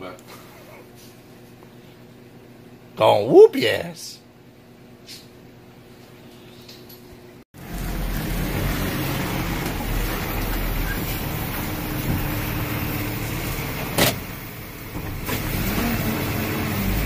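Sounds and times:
truck engine rumbling: 7.6s - 17.0s.

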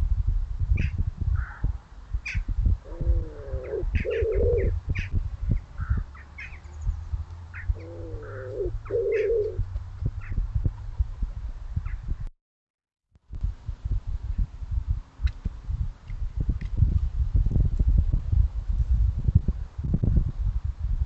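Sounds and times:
small birds chirping: 2.2s - 9.6s
pigeon cooing: 2.8s - 5.1s, 7.6s - 9.6s.

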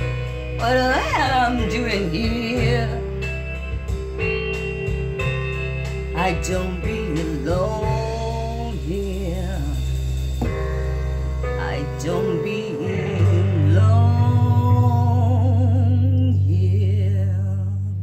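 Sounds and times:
guitar rock ballad: 0.0s - 18.0s
person singing long notes: 0.6s - 3.1s, 11.6s - 18.0s.

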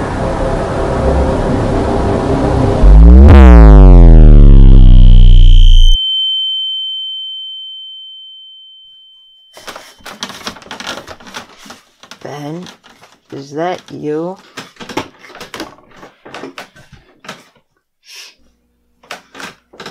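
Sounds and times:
synthesized tones sweeping downward: 0.0s - 6.0s
high ringing tone: 2.8s - 10.1s
faint clicks and rustles: 9.6s - 17.7s.

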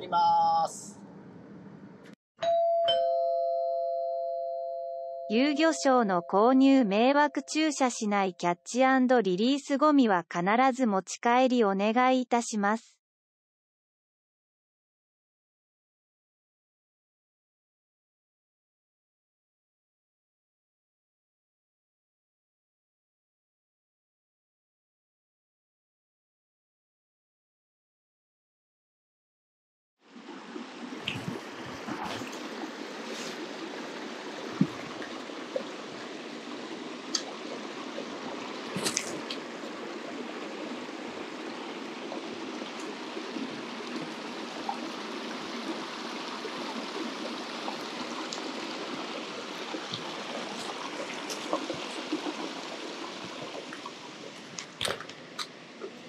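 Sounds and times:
stream running over rocks: 30.1s - 55.9s.

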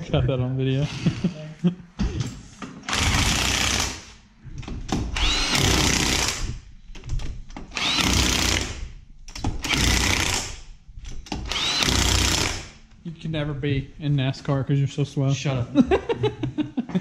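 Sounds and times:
impact wrench bursts: 2.8s - 4.2s, 5.0s - 6.6s, 7.7s - 10.7s, 11.3s - 12.8s.

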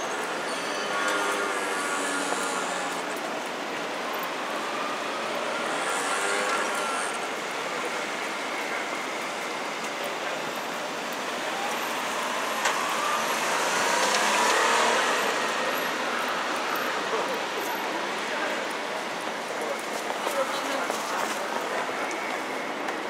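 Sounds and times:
street traffic: 0.0s - 23.0s
vehicle passing close: 12.2s - 16.0s.

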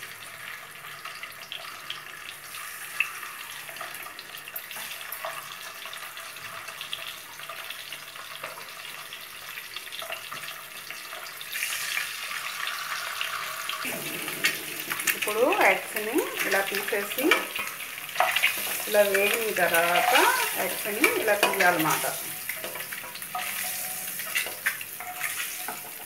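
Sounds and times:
hot oil sizzling: 0.0s - 26.0s.

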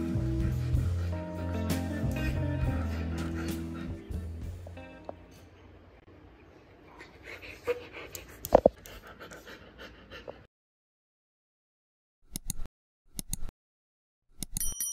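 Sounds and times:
dog panting: 0.0s - 4.4s, 6.8s - 10.5s.

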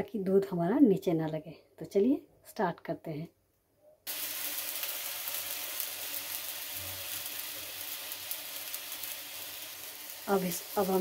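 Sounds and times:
water sizzling in a hot pan: 4.1s - 11.0s.

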